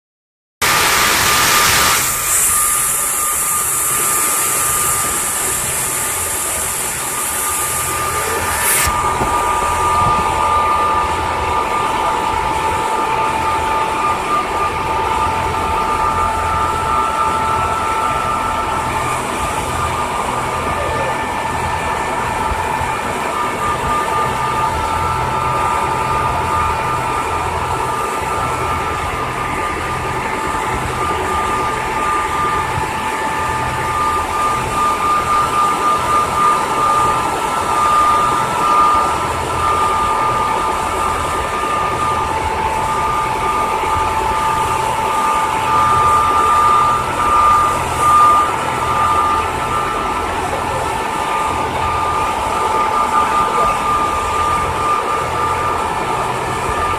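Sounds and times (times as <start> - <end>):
high hiss: 0.7 - 10.7
ferry engine throbbing: 0.9 - 56.9.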